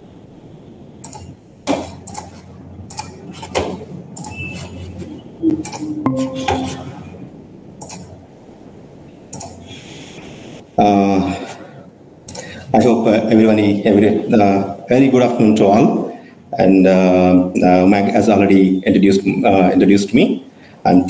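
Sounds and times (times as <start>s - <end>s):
brief ringing tone: 5.4s - 7.3s.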